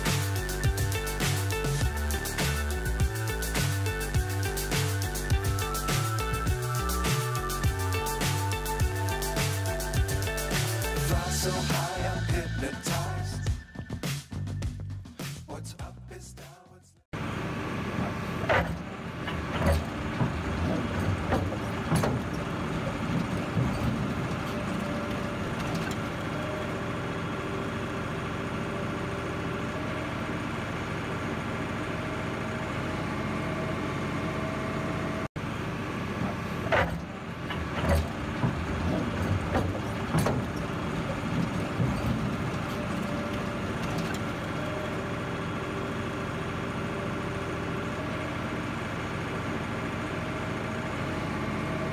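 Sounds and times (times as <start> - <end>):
dump truck engine hum: 0.0 - 13.8, 17.2 - 51.9
sharp knocks and rattles: 18.0 - 26.2, 36.2 - 44.6.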